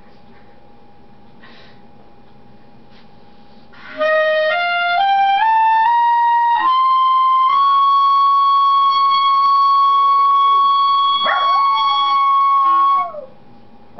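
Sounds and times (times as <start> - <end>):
clarinet playing: 3.8 - 13.3.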